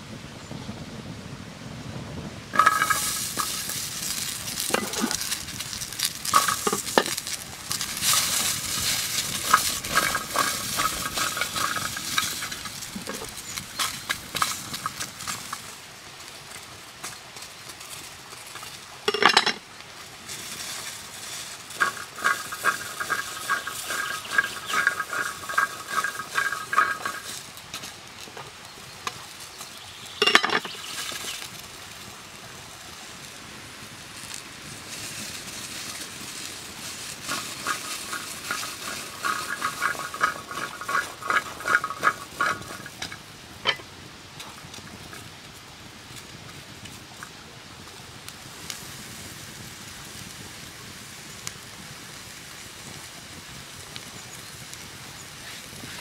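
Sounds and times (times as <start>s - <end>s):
vegetables sizzling in a frying pan: 2.5s - 56.0s
metal utensil scraping a pan: 2.6s - 15.4s, 19.1s - 19.6s, 21.7s - 27.5s, 30.2s - 31.4s, 37.2s - 43.9s
sharp metal clanks: 30.2s - 30.8s.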